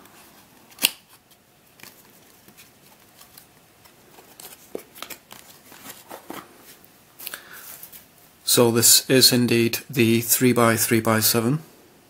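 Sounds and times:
cardboard rustling: 0.1 - 6.9.

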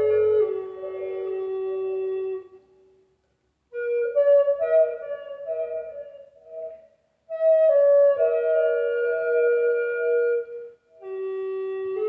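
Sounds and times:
solo flute melody: 0.0 - 3.0, 3.7 - 12.0.

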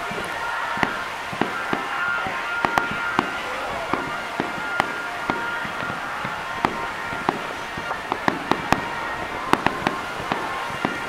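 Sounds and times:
fireworks bursting with bangs: 0.0 - 11.0
steady wash of noise: 0.0 - 11.0.

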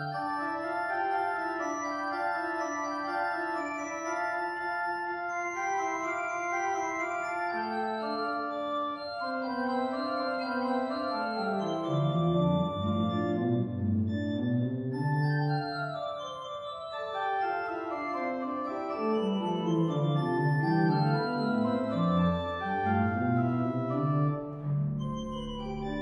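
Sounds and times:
pipe organ playing: 0.0 - 26.0
low organ bass notes: 19.9 - 26.0.

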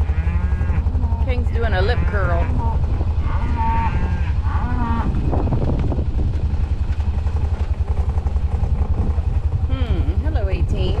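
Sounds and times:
cattle mooing: 0.0 - 5.5
steady low rumble: 0.0 - 11.0.

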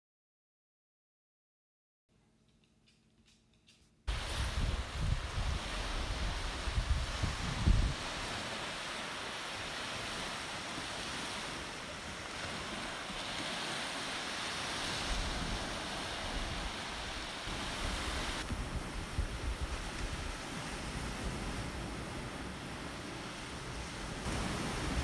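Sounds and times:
waves washing on sand beach: 4.1 - 25.0
wind buffeting microphone: 4.1 - 25.0.

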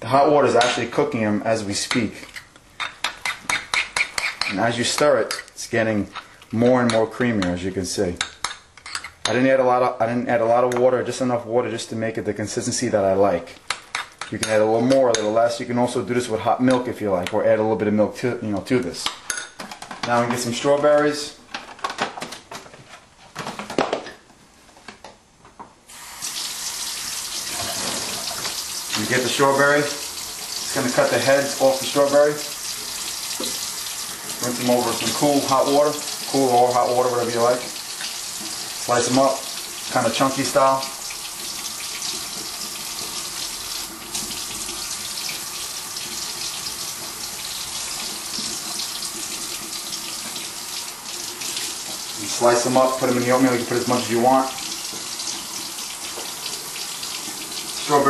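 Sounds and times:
water running into sink: 25.9 - 58.0.

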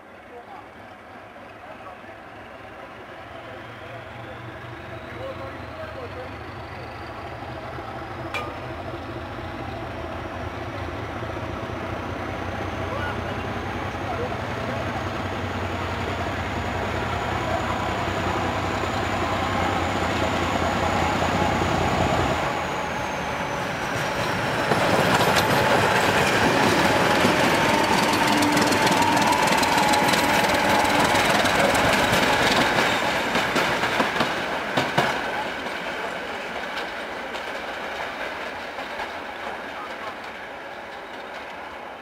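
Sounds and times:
diesel locomotive engines working: 0.0 - 42.0
wheels clicking over rail joints: 8.2 - 9.2, 23.9 - 41.6.

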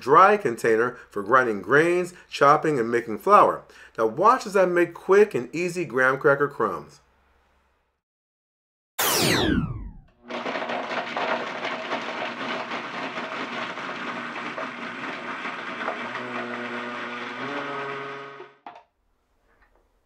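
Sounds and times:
falling whoosh: 9.0 - 10.0
blender grinding crackers: 10.2 - 18.6.

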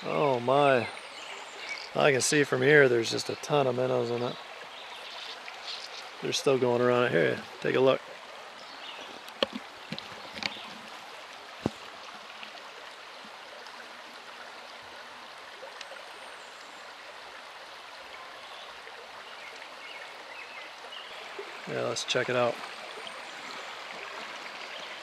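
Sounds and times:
river running over stones: 0.0 - 25.0.

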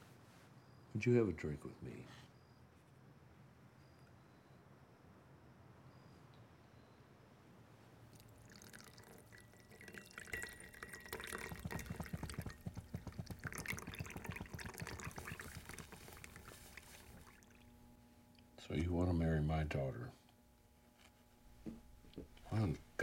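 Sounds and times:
drink pouring into glass: 8.1 - 17.7.

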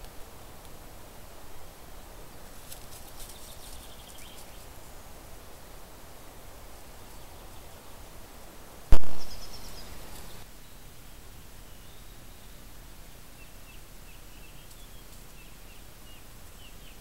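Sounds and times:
loud thump: 8.9 - 9.3
faint high chirps: 8.9 - 10.9.

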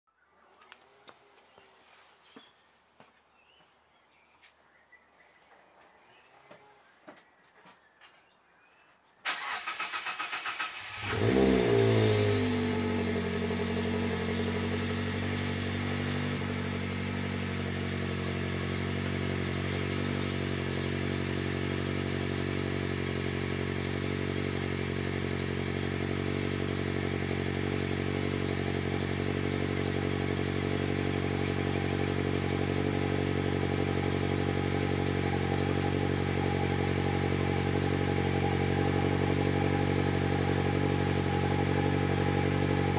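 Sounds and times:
car engine revving and idling: 9.3 - 42.9.

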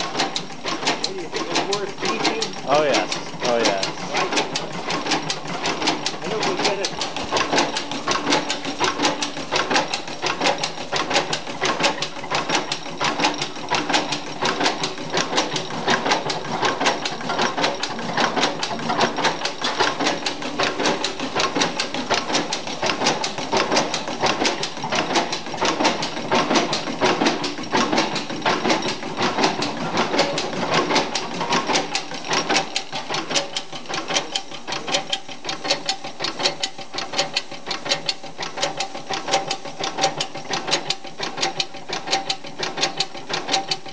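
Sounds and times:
stationary engine clattering: 0.0 - 43.9.

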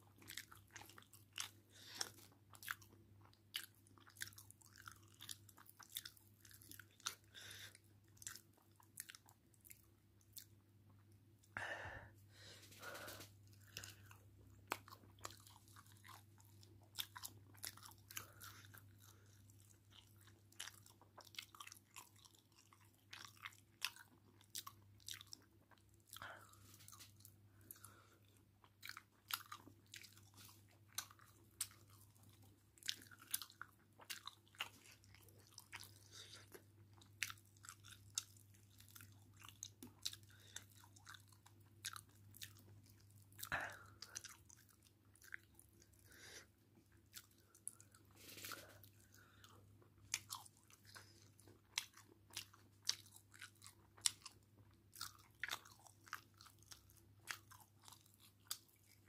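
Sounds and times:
wet chewing: 0.0 - 11.1, 12.7 - 59.0
fingers squishing food in gravy: 26.8 - 59.0.

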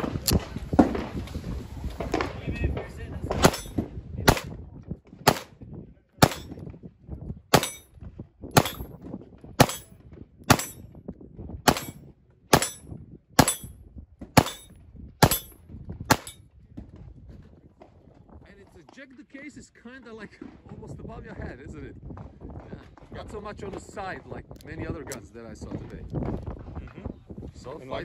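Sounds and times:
pistol shots: 3.4 - 4.5, 5.3 - 5.5, 6.2 - 6.6, 7.5 - 7.8, 8.6 - 8.9, 9.6 - 9.9, 10.5 - 10.8, 11.7 - 12.8, 13.4 - 13.7, 14.4 - 16.4.

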